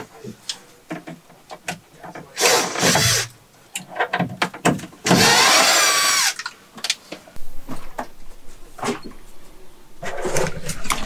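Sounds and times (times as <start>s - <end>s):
power drill running: 2.4s - 3.3s, 5.1s - 6.4s.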